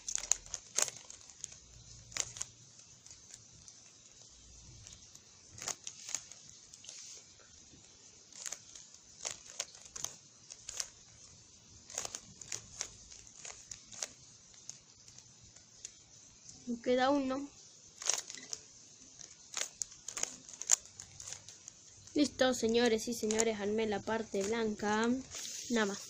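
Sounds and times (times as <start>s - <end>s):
plastic puzzle cube clicking: 0.0s - 7.0s, 8.3s - 11.1s, 11.9s - 15.2s, 18.0s - 18.6s, 19.2s - 23.6s, 24.2s - 25.4s.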